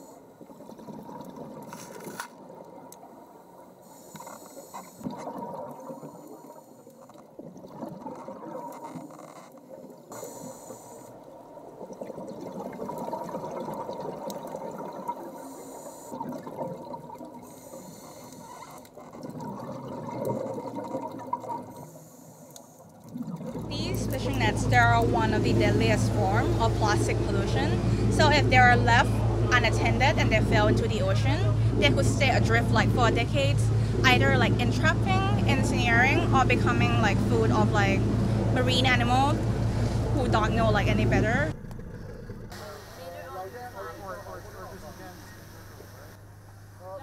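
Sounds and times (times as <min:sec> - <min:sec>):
bubbling exhalations: 0:04.9 - 0:10.9, 0:11.6 - 0:22.0, 0:22.9 - 0:43.0
regulator hissing inhalations: 0:10.1 - 0:11.2, 0:15.3 - 0:16.2, 0:17.4 - 0:18.7.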